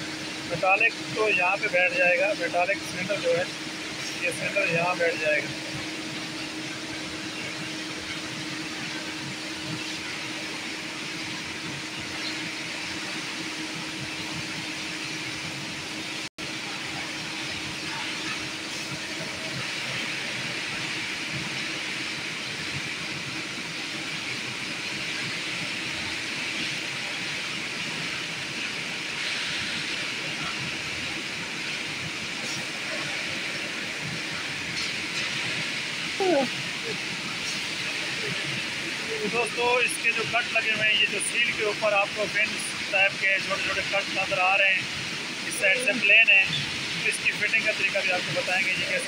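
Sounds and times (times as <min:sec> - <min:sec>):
steady background hiss: 0:00.0 - 0:49.0.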